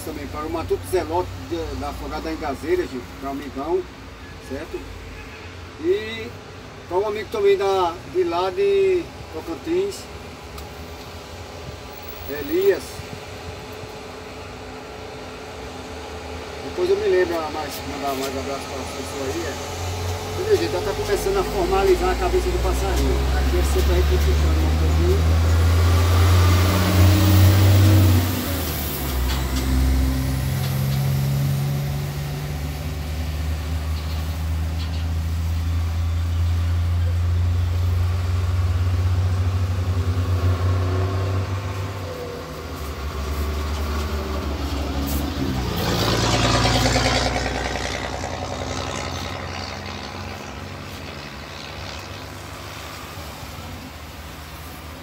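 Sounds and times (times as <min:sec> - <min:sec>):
vehicle engine rumbling: 0:00.0 - 0:55.0
vehicle driving past: 0:11.8 - 0:54.9.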